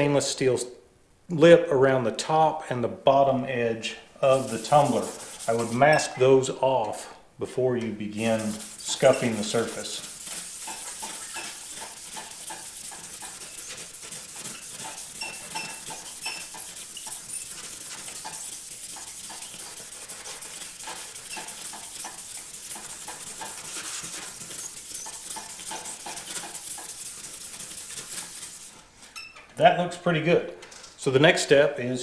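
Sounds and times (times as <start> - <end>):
abrasive pad rubbing on metal: 4.2 - 5.8, 8.2 - 28.8.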